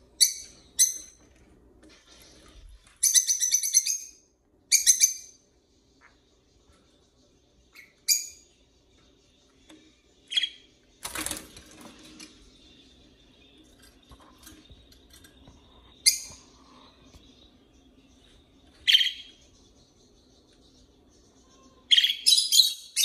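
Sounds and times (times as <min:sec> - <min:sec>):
budgerigars chirping: 0:18.8 - 0:20.7.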